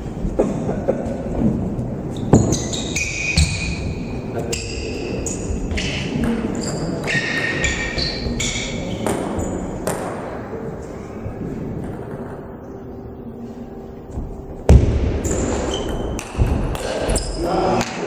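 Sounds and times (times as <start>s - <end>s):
ball pings and shoe squeaks: 2.1s - 10.2s, 15.2s - 17.5s.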